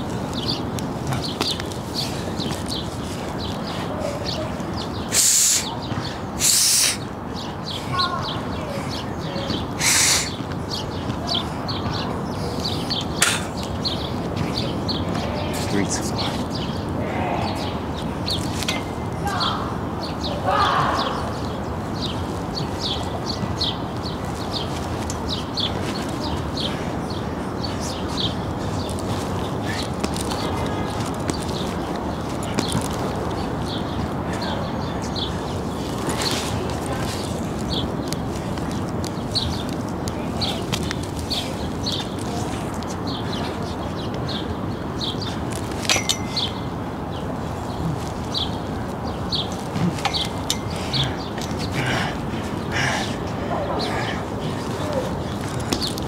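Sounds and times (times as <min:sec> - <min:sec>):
outdoor background noise: 0:00.0 - 0:56.0
small birds chirping: 0:00.0 - 0:56.0
loud short hisses: 0:06.4 - 0:07.0, 0:09.8 - 0:10.4.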